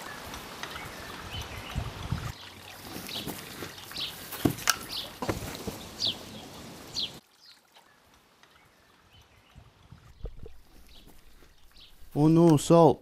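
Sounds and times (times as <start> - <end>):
birds chirping: 0.0 - 12.9
outdoor background noise: 0.0 - 13.0
sharp knocks and thumps: 4.4 - 5.8.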